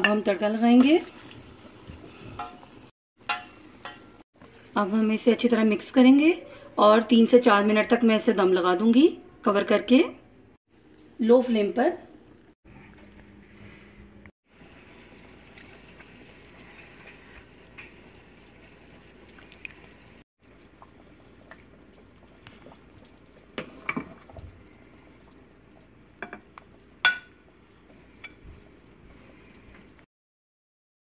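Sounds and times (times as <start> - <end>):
thick gravy pouring: 0.9 - 2.8, 14.5 - 26.9.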